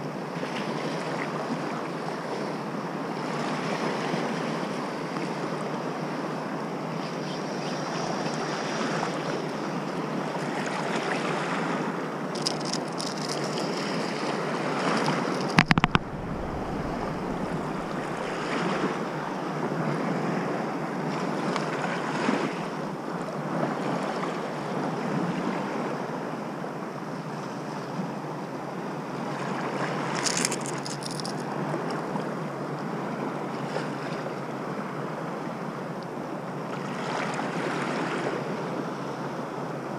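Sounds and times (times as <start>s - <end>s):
small waves washing: 10.4s - 19.2s
short high rattles: 15.4s - 18.4s, 30.2s - 31.4s
wind buffeting microphone: 15.4s - 19.2s.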